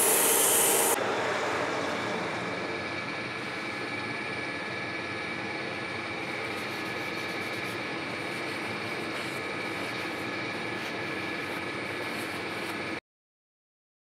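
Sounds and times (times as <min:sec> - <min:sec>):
metal lathe whining: 0:00.0 - 0:13.0
towel rubbing turning shaft: 0:06.2 - 0:13.0.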